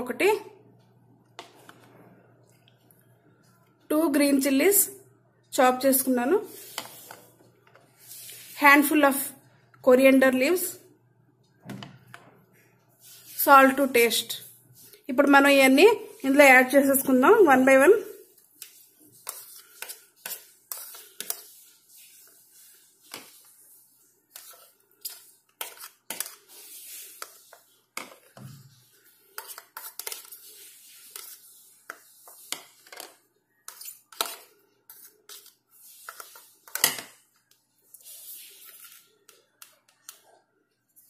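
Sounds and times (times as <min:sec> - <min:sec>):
spoons scraping plastic bowls: 0:06.0 - 0:09.3, 0:13.0 - 0:40.2.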